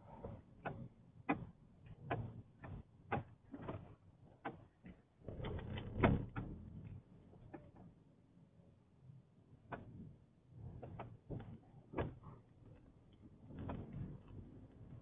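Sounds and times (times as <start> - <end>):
clicks and knocks inside car: 0.1 - 6.6, 10.8 - 14.6
low road rumble: 4.8 - 8.1, 10.7 - 15.0.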